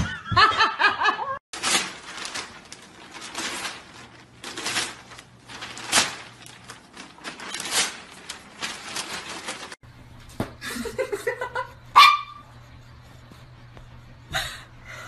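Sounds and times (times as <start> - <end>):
newspaper rustling and tearing: 1.5 - 9.8.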